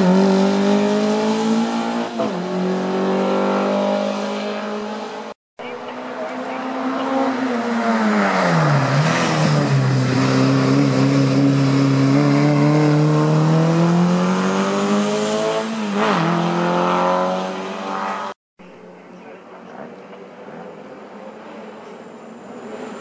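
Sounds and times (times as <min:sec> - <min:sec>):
race car engine revving: 0:00.0 - 0:18.4.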